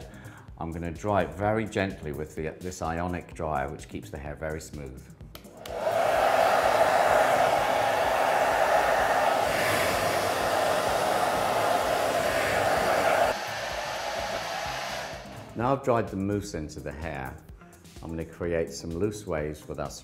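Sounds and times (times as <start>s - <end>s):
hair dryer blowing: 5.6s - 15.6s.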